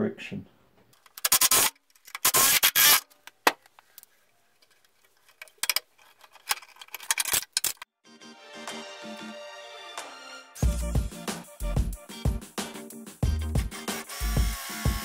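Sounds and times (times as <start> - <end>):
wooden jig being handled: 3.1 - 7.8
cordless drill boring into wood: 14.0 - 15.0.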